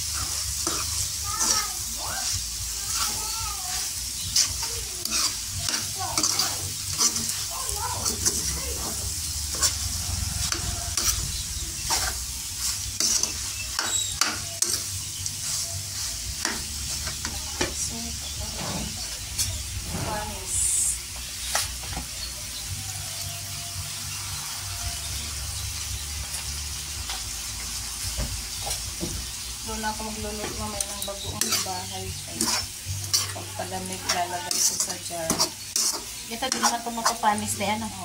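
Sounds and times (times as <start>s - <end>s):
metal spatula scraping a pan: 0.0s - 20.3s, 29.8s - 38.0s
food sizzling in a pan: 0.0s - 38.0s.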